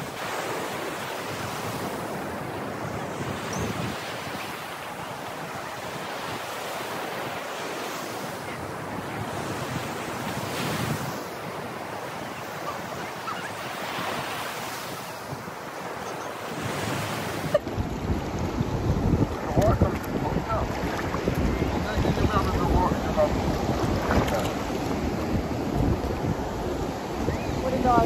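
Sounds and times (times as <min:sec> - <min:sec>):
ocean surf breaking: 0:00.0 - 0:28.0
wind buffeting microphone: 0:01.3 - 0:06.6, 0:14.1 - 0:28.0.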